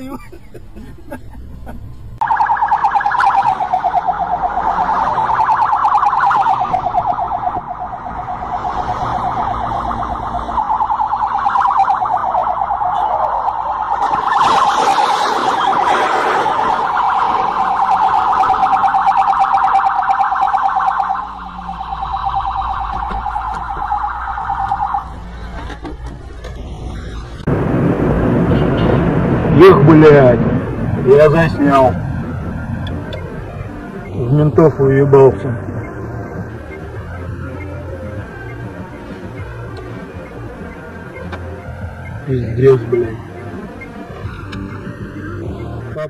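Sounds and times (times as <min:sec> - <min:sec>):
police siren warbling: 0:02.2 - 0:25.4.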